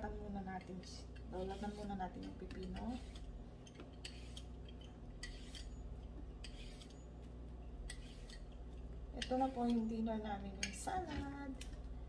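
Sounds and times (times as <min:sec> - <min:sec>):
peeler scraping cucumber skin: 0:02.5 - 0:03.3, 0:04.0 - 0:05.7, 0:06.4 - 0:07.0, 0:07.9 - 0:08.5.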